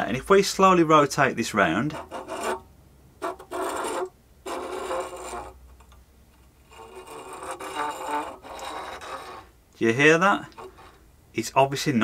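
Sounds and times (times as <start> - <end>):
bit tip scraping a board: 1.8 - 9.5, 10.4 - 11.0.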